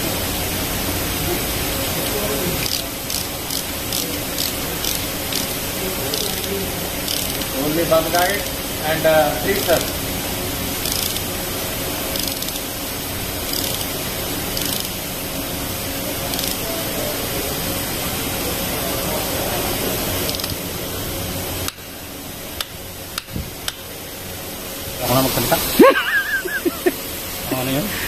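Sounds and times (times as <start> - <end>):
workshop hiss: 0.0 - 28.0
socket ratchet clicks: 7.1 - 7.5, 10.8 - 11.3, 12.2 - 12.7, 13.5 - 13.9, 14.6 - 15.0, 16.3 - 16.6, 20.3 - 20.6.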